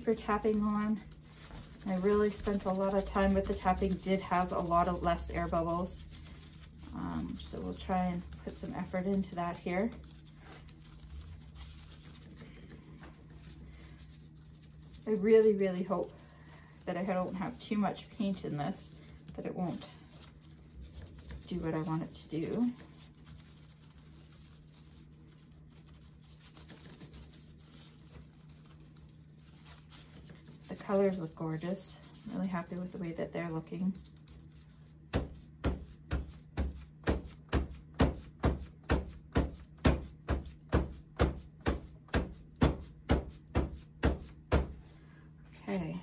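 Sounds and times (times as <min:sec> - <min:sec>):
steady low hum: 0:00.0 - 0:46.0.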